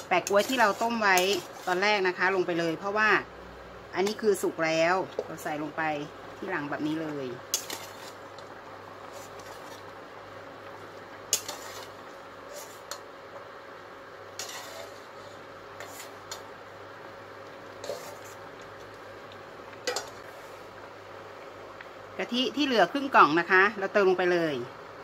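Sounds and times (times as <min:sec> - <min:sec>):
ladle scraping a steel pot: 0:00.0 - 0:02.1, 0:07.5 - 0:08.3, 0:09.0 - 0:09.8, 0:11.3 - 0:13.0, 0:14.3 - 0:16.5, 0:17.8 - 0:18.4
steady faint hum: 0:00.0 - 0:25.0.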